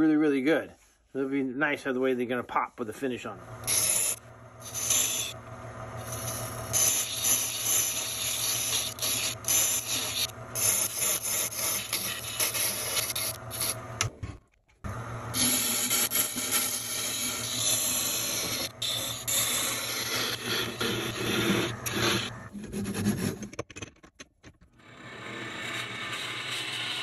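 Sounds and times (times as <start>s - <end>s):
lathe motor hum: 3.4s - 14.2s, 14.9s - 22.5s
tool scraping turning wood: 3.6s - 14.4s, 15.3s - 24.6s.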